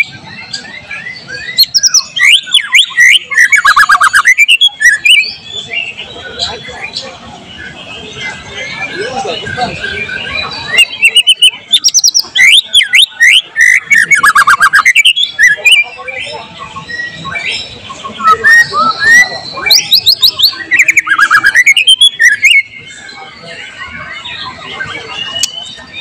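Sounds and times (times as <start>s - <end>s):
bird singing whistled notes: 0.0s - 26.0s
bird rapid ticking notes: 1.4s - 5.2s, 10.7s - 15.9s, 17.0s - 23.0s.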